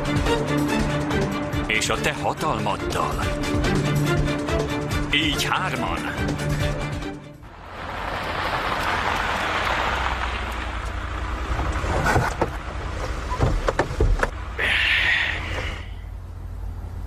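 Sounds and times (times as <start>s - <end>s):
car engine and tyre hiss: 7.4s - 13.4s, 14.3s - 17.0s
sharp clicks and knocks: 13.4s - 14.4s.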